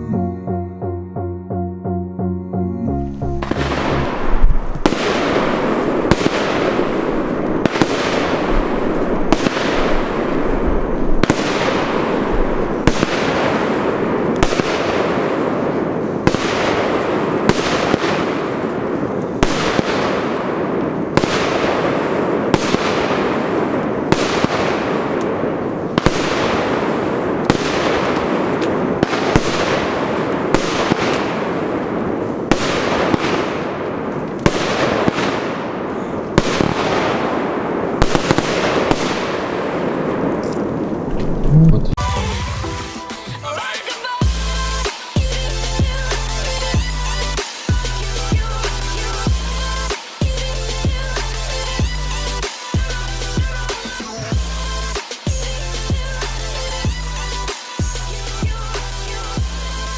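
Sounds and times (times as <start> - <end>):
firework shots banging: 3.4 - 42.0
firework hiss: 42.1 - 59.9.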